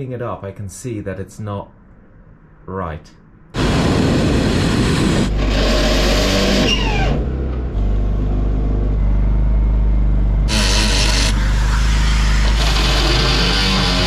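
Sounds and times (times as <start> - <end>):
electric drill boring through steel: 10.5 - 14.0.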